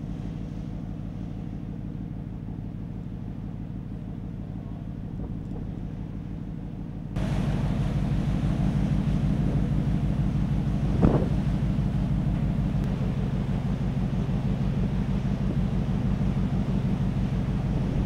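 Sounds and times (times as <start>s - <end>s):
ship engines humming: 0.0s - 18.0s
sea rushing: 7.2s - 18.0s
wind on microphone: 10.8s - 11.8s.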